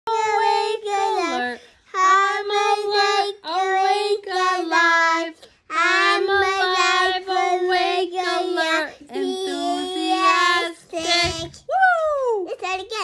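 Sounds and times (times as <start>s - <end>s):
child singing: 0.1s - 11.6s
woman singing along: 5.9s - 11.6s.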